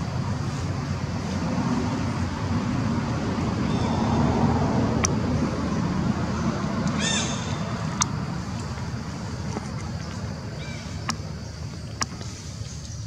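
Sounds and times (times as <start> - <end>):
low rumbling background noise: 0.0 - 13.0.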